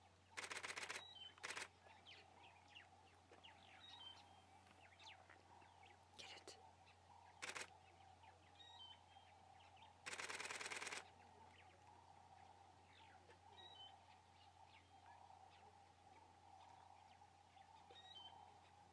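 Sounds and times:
camera shutter rapid burst: 0:00.4 - 0:01.7, 0:07.4 - 0:07.7, 0:10.1 - 0:11.0.

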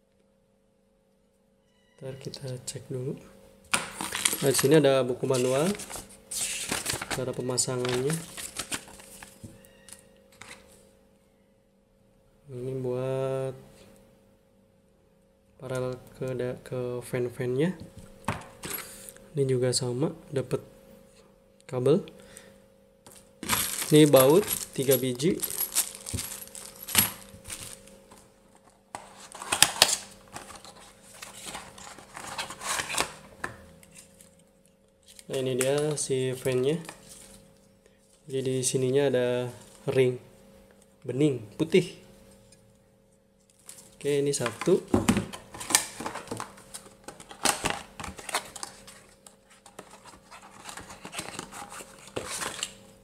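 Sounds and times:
cardboard and plastic rustling: 0:03.7 - 0:09.5, 0:23.1 - 0:33.3, 0:43.5 - 0:52.8.

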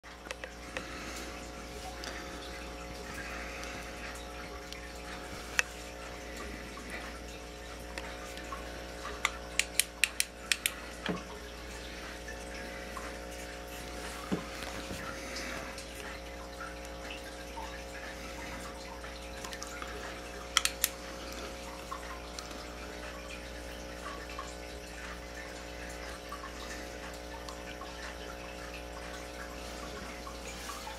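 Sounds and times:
steady hum: 0:00.0 - 0:30.9
trickling water-like hiss: 0:00.1 - 0:30.9
sharp clicks: 0:09.2 - 0:10.8, 0:20.6 - 0:21.0.

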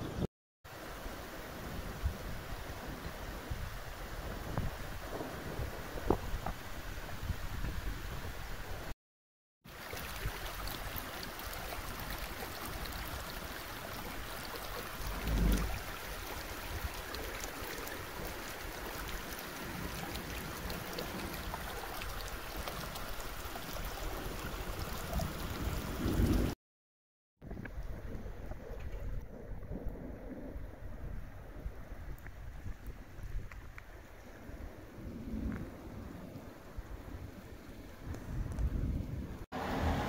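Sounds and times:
wind rumbling on microphone: 0:00.0 - 0:08.9, 0:10.0 - 0:26.6, 0:27.4 - 0:40.0
floodwater rushing and gurgling: 0:09.7 - 0:26.6, 0:39.3 - 0:40.0.

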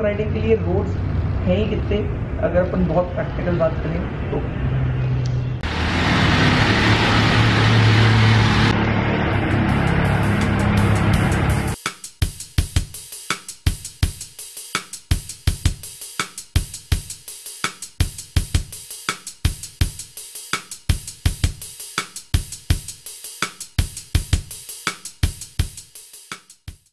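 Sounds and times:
music with drum beat: 0:09.4 - 0:26.9.

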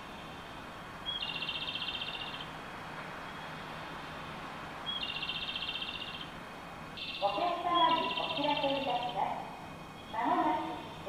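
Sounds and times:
low background hum: 0:00.0 - 0:11.0
pulsing electronic chirp: 0:07.0 - 0:09.2.

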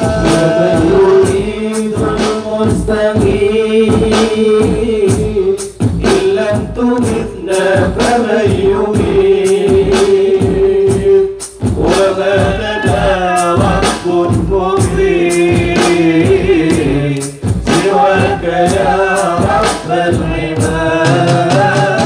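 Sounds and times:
men singing through loudspeaker: 0:00.0 - 0:22.0
hand drum strikes: 0:12.5 - 0:19.8.

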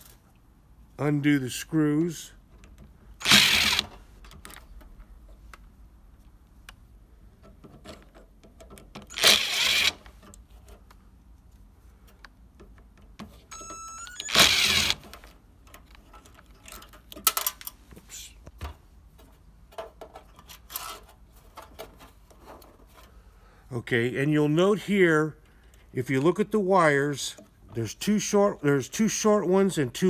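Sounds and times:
electric screwdriver whirring: 0:03.2 - 0:03.9, 0:09.1 - 0:10.0, 0:14.1 - 0:15.0.

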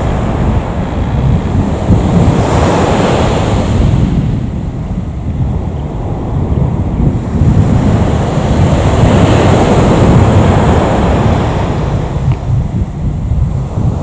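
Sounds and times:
jet engines rumbling with whine: 0:03.6 - 0:14.0.

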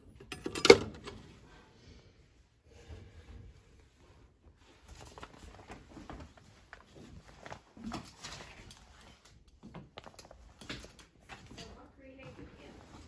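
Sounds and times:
rustling: 0:03.1 - 0:09.3.

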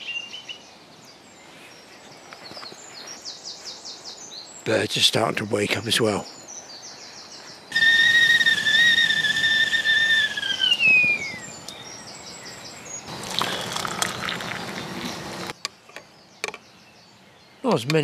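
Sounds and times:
kettle whistling: 0:07.7 - 0:11.5.

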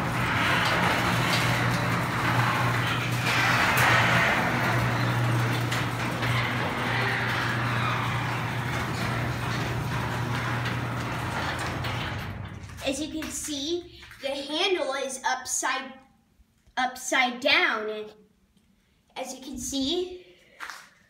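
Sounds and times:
garage door opener motor hum: 0:00.0 - 0:13.2
garage door rolling on tracks: 0:00.0 - 0:14.2.

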